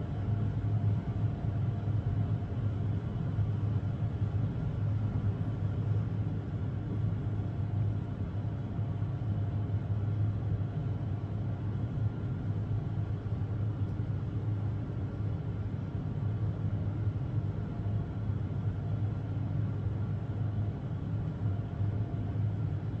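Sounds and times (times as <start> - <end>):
low background rumble and hum: 0.0 - 23.0.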